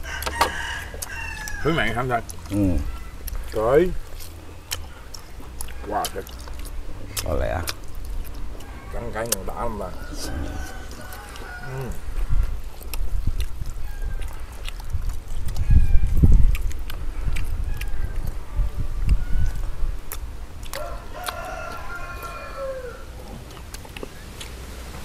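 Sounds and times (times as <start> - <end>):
rooster crowing: 0.0 - 2.1, 8.6 - 12.3, 13.8 - 14.5, 17.6 - 19.8, 20.7 - 23.2.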